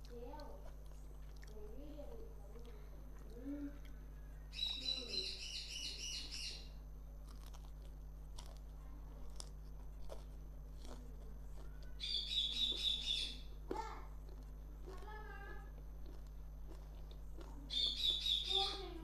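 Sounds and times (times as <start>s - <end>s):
chewing clicks: 0.0s - 1.8s, 2.4s - 4.0s, 7.2s - 12.9s, 13.6s - 18.2s
bird chirping: 4.2s - 6.8s, 11.6s - 13.5s, 17.7s - 19.0s.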